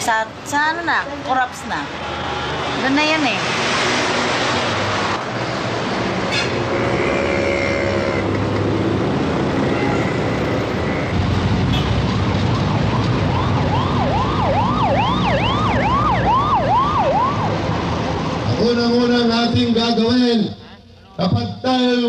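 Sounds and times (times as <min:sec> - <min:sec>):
road traffic noise: 0:00.0 - 0:22.0
emergency siren yelping: 0:12.0 - 0:18.2.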